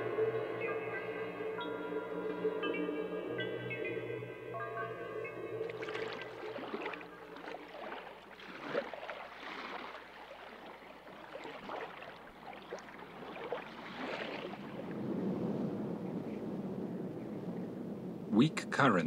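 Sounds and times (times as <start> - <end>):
sea water sloshing along hull: 5.6 - 18.0
loud water splash: 5.8 - 15.0.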